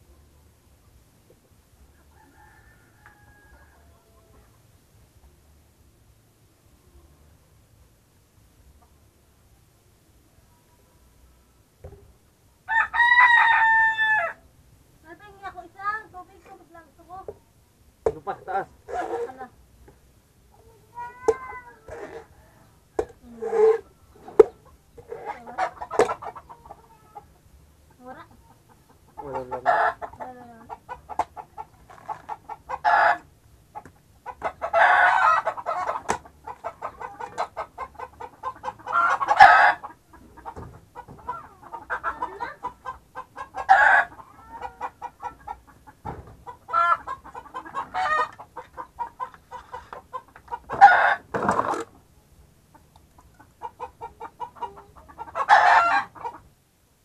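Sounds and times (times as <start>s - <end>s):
chickens clucking: 0.8s - 4.8s, 8.6s - 9.4s, 15.2s - 56.6s
rooster crowing: 2.1s - 4.2s, 12.7s - 14.4s, 34.7s - 35.9s.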